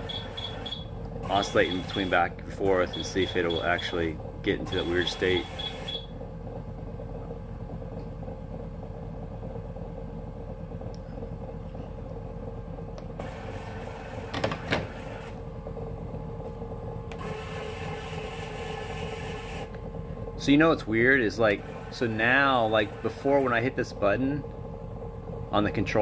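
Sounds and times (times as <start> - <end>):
motor whirring: 0.0 - 6.1, 17.1 - 19.8
ball machine humming: 0.0 - 26.0.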